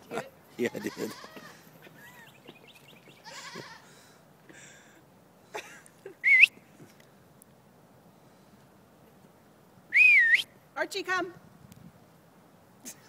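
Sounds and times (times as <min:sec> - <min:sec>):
person whistling: 0:06.3 - 0:06.5, 0:09.9 - 0:10.4.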